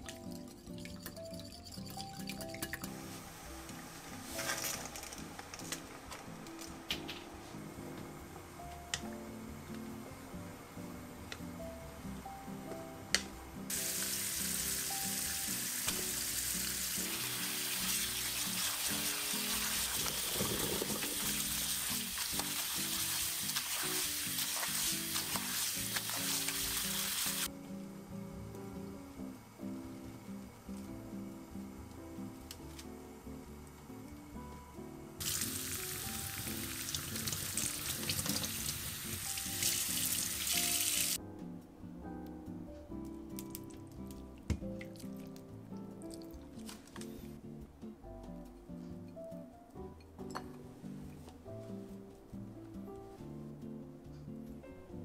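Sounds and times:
background music: 0.0s - 55.0s
tap water pouring into colander: 13.7s - 27.5s, 35.2s - 41.2s.

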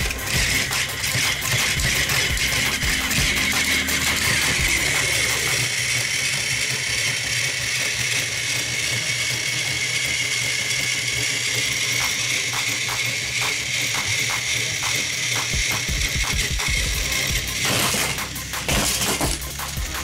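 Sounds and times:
rapid ticks: 0.0s - 5.8s, 11.6s - 18.7s
toy train motor whirring: 0.0s - 20.0s.

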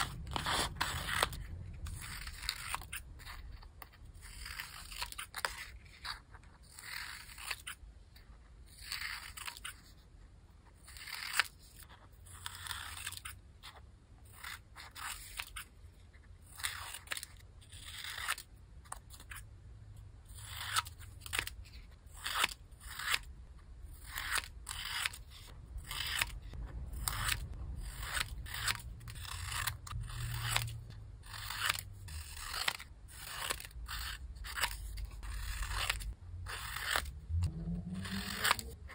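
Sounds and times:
scissors snipping paper: 0.0s - 7.8s, 23.9s - 37.1s, 38.0s - 38.9s.

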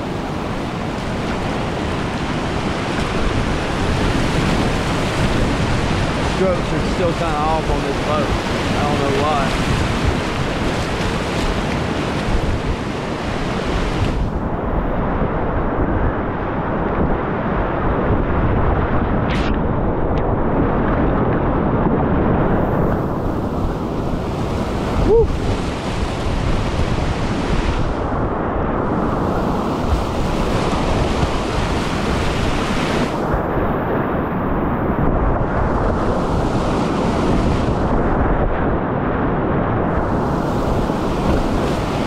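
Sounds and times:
whitewater rapids rushing: 0.0s - 14.3s, 22.7s - 28.1s, 28.9s - 33.5s, 39.9s - 42.0s.

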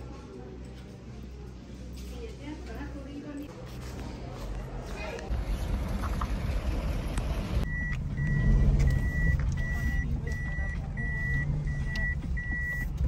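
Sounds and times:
car engine hum: 5.3s - 13.0s
car warning beeps: 7.6s - 13.0s.

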